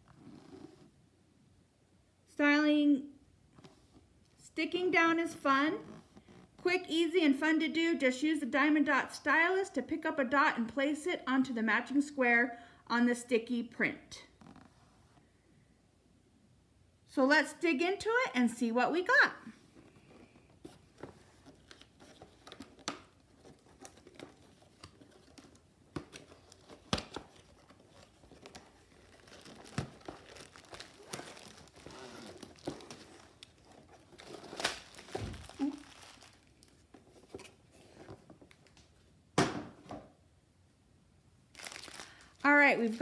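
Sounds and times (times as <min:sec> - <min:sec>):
plastic wrapping crinkling: 0:19.8 - 0:39.0, 0:41.5 - 0:43.0.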